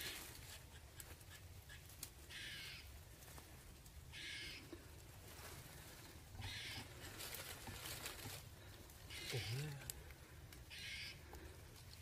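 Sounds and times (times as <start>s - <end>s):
crow cawing: 1.7s - 2.9s, 4.1s - 4.8s, 6.4s - 7.2s, 9.1s - 9.8s, 10.7s - 11.5s.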